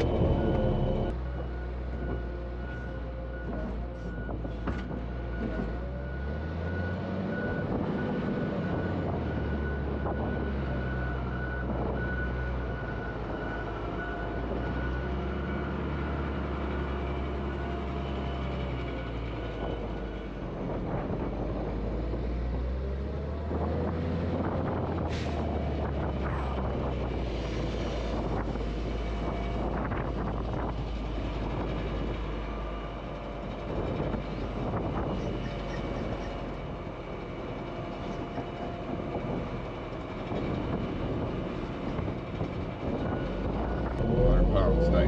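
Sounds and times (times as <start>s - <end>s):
diesel wheel loader running: 0.0s - 45.0s
feed mixer truck running: 30.8s - 45.0s.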